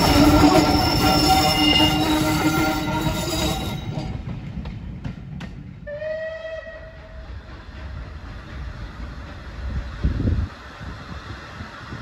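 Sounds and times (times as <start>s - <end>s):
steam locomotive whistle: 0.0s - 3.9s, 5.8s - 7.2s
moving train rumble: 0.0s - 12.0s.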